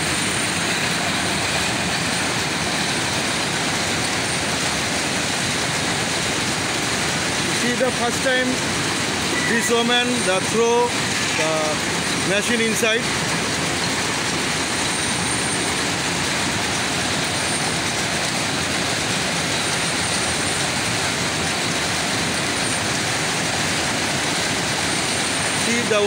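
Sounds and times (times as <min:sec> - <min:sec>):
mill machinery running: 0:00.0 - 0:26.0.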